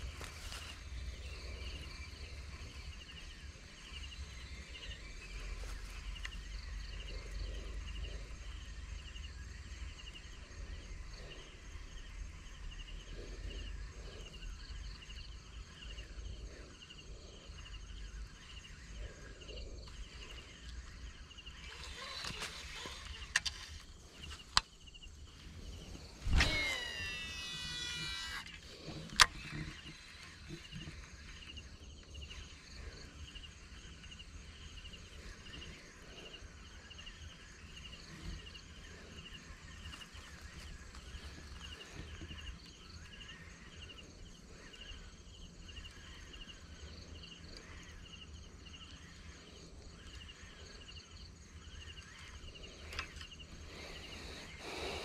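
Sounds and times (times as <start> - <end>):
insects chirring: 0.0 - 55.0
sharp clicks: 21.6 - 24.8, 26.2 - 30.9.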